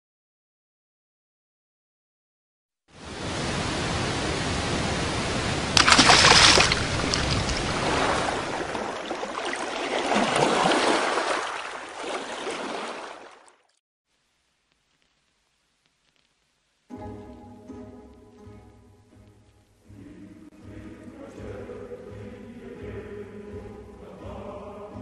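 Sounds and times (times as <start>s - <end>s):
rushing water: 2.9s - 13.7s
loud water splash: 3.0s - 13.6s.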